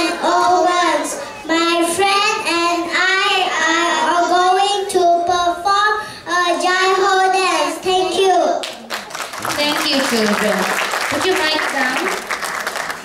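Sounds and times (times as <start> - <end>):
children singing: 0.0 - 4.8.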